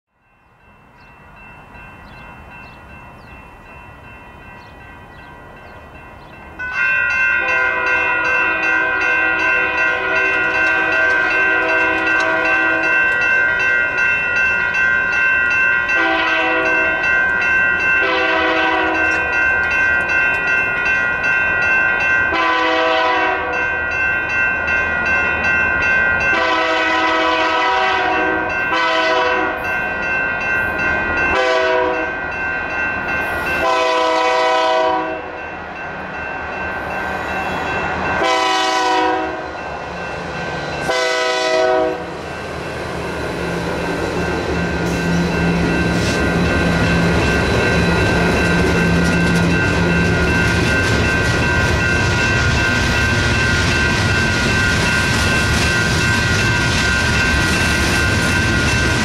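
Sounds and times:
crossing signal bells ringing: 0.1 - 59.0
train horn blasts: 7.4 - 13.0, 15.9 - 17.1, 18.0 - 19.2, 22.3 - 23.6, 26.3 - 29.7, 31.3 - 32.1, 33.6 - 35.4, 37.5 - 39.6, 40.8 - 42.1.

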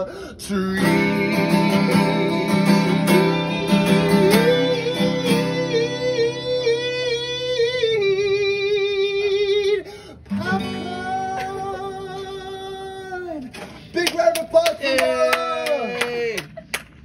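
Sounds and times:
acoustic guitar strumming: 0.5 - 13.1.

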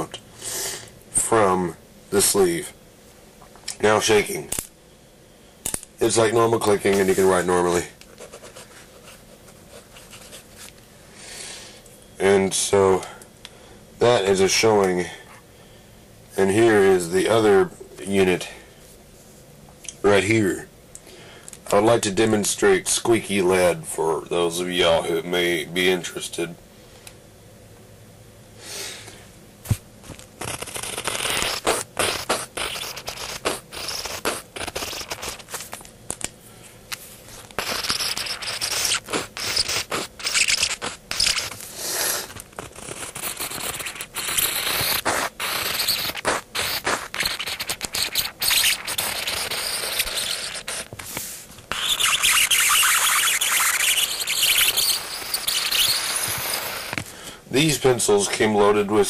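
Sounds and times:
pencil scribbling on paper: 30.4 - 35.6, 37.6 - 41.6, 42.2 - 50.9, 51.7 - 57.0.

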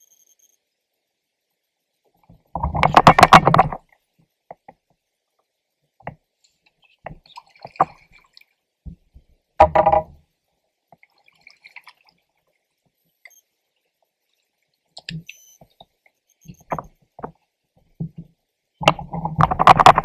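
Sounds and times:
water splashing and dripping: 6.0 - 9.4, 10.9 - 13.0
small knocks: 9.6 - 10.2, 16.5 - 17.4, 18.0 - 20.0.

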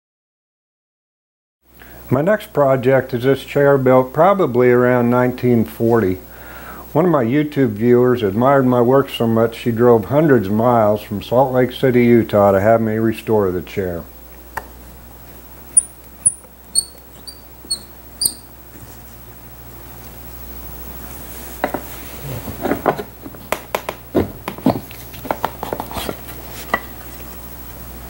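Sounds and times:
short high squeaks: 15.8 - 18.5.

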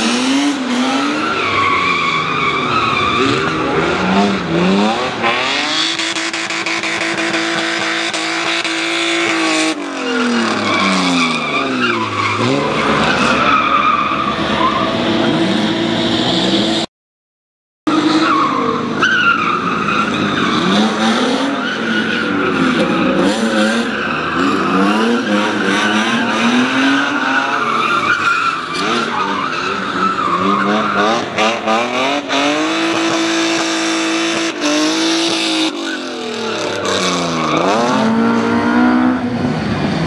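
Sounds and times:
racing car engines revving: 0.0 - 16.9, 17.9 - 40.0
tyres squealing on wet tarmac: 0.9 - 3.9, 8.8 - 15.0, 18.0 - 31.8.

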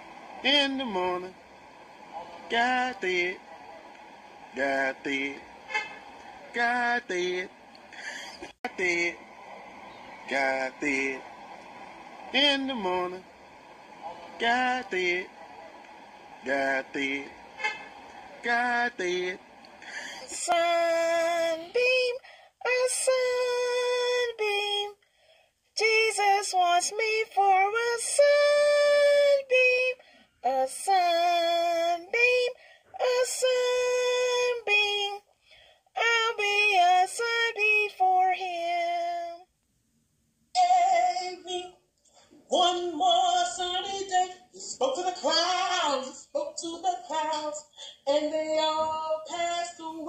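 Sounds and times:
unaccompanied singing voice: 0.0 - 25.0, 25.8 - 35.3, 35.9 - 39.5, 40.5 - 41.8, 42.5 - 50.0.

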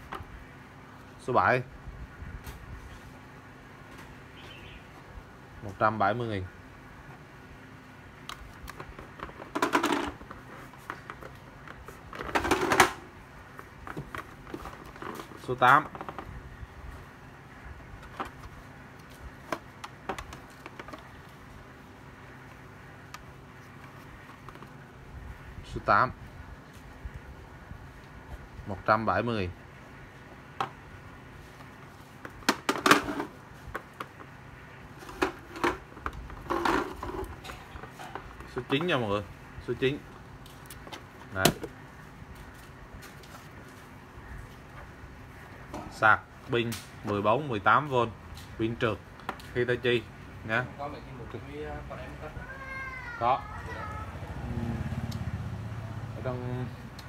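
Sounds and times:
plastic chargers clattering: 8.4 - 13.1, 13.8 - 16.3, 32.2 - 34.3, 35.0 - 39.0.

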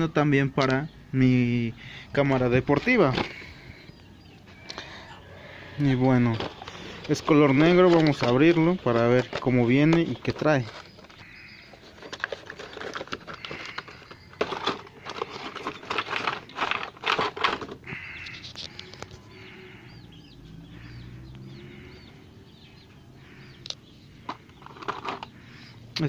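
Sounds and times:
bird chirping: 0.0 - 26.0
plastic packaging crackling: 6.1 - 19.1.

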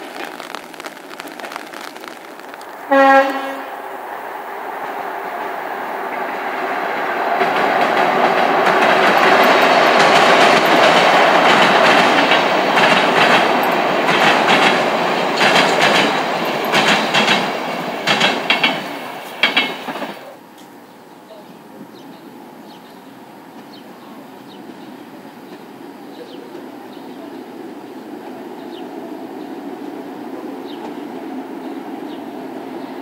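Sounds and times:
train wheels rumbling on rails: 0.0 - 33.0
wheels clacking over rail joints: 4.8 - 20.7.

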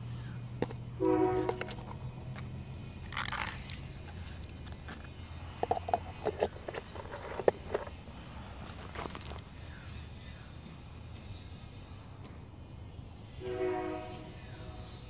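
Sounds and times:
low steady hum: 0.0 - 15.0
dry grass and leaves crunching: 3.0 - 5.1, 6.3 - 10.4.

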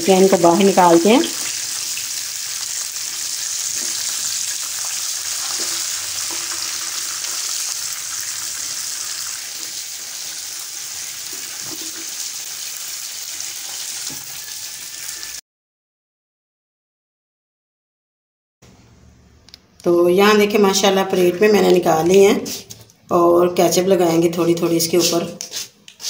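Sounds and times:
food sizzling in hot fat: 0.0 - 15.4.

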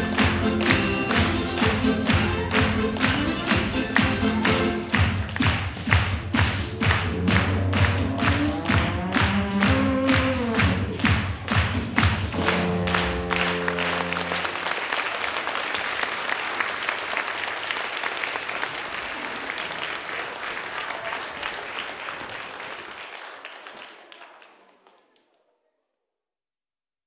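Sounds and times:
audience applauding: 0.0 - 25.4
held music chord: 12.3 - 14.7.

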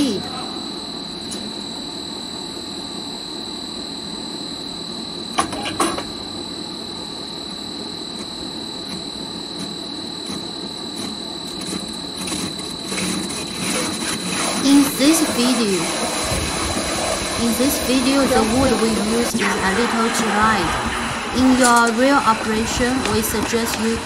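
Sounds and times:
high machine whine: 0.0 - 24.0
wood cutting machine running: 12.3 - 24.0.

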